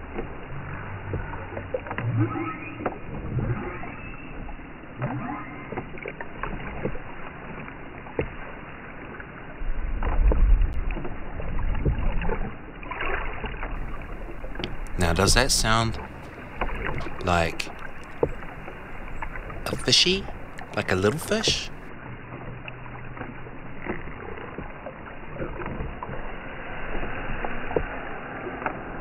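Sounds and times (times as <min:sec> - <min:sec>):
underwater water noise: 0:00.0 - 0:29.0
whale song: 0:00.0 - 0:29.0
deep rumble: 0:09.5 - 0:20.8.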